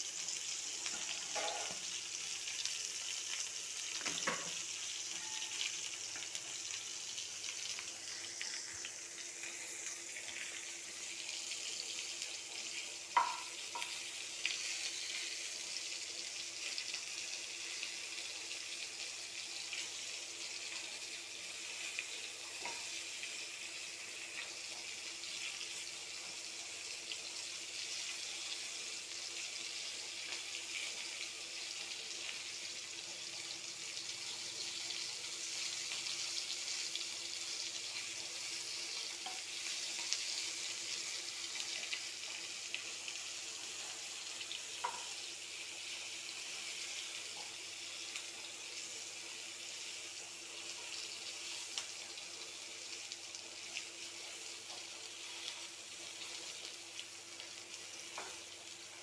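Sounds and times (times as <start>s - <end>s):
vegetables sizzling in hot oil: 0.0s - 59.0s
small oil crackles: 5.4s - 15.5s.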